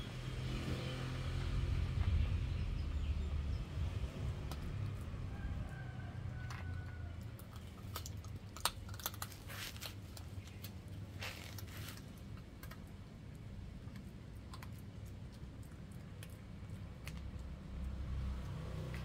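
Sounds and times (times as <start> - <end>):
puppy chewing bone: 6.4 - 10.4, 11.6 - 19.0.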